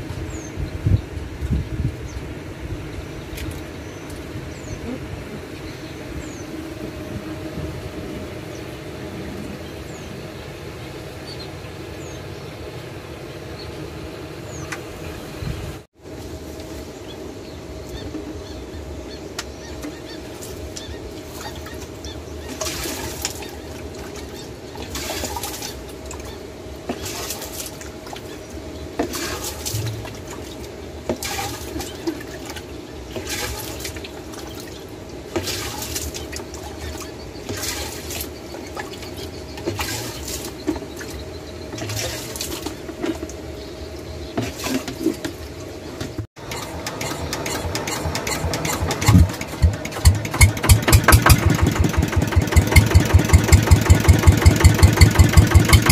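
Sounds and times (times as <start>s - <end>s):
pump engine running: 20.8s - 39.0s, 39.6s - 41.1s, 41.7s - 43.3s, 46.4s - 55.9s
water splashing into bucket: 22.5s - 26.3s, 26.9s - 28.4s, 29.0s - 41.2s, 41.8s - 42.9s.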